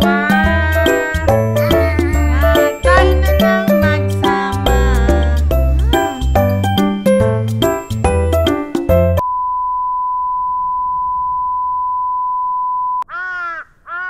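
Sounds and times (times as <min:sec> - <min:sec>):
tinkly plucked music: 0:00.0 - 0:09.2
drawn-out rising falling calls: 0:13.1 - 0:14.0.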